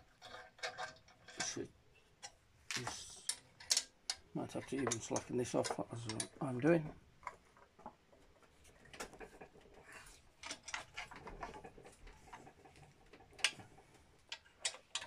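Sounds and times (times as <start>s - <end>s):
metallic clicks and taps: 2.2s - 6.4s.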